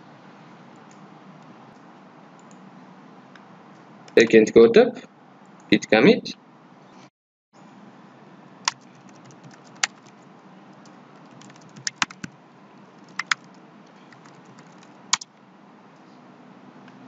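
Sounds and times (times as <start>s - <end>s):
keyboard typing: 8.6s - 15.3s.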